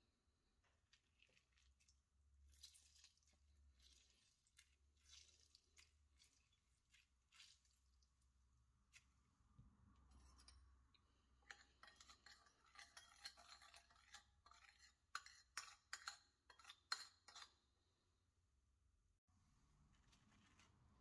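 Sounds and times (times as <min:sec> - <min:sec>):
spoon clinking in ceramic bowl: 0:11.4 - 0:17.5.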